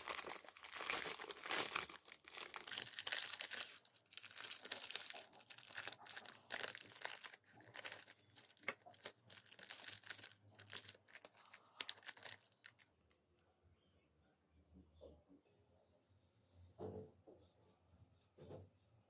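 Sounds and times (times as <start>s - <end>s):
plastic wrapper crinkling: 0.0s - 12.9s.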